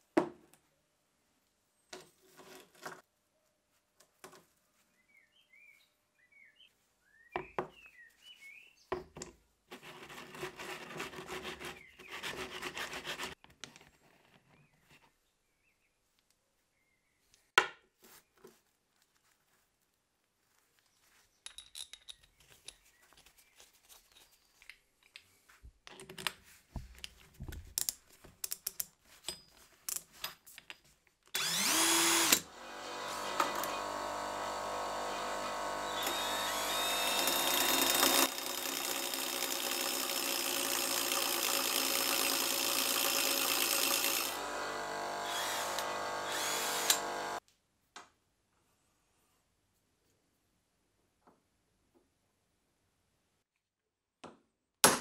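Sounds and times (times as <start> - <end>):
power tools whining: 31.4 - 47.4.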